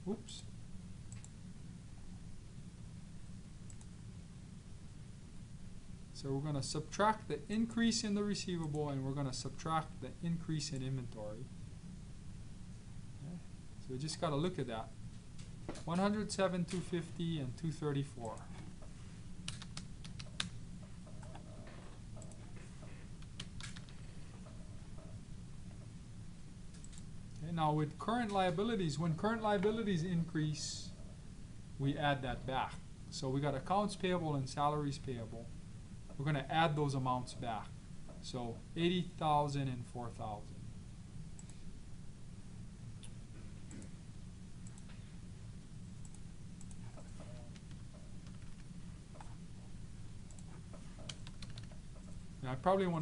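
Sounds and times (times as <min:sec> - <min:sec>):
low steady hum: 0:00.0 - 0:53.0
computer mouse clicks: 0:01.1 - 0:01.4, 0:03.7 - 0:03.9, 0:19.4 - 0:22.6, 0:23.2 - 0:25.1, 0:26.7 - 0:27.4, 0:46.0 - 0:49.4, 0:50.3 - 0:52.2
keyboard keys clicking: 0:50.3 - 0:52.2.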